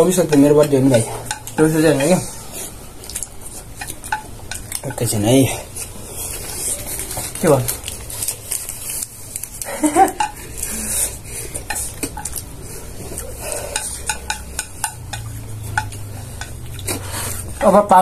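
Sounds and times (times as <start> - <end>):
cutlery clinking on plates: 0.0 - 2.2, 3.2 - 5.2, 9.9 - 10.7, 13.2 - 17.0.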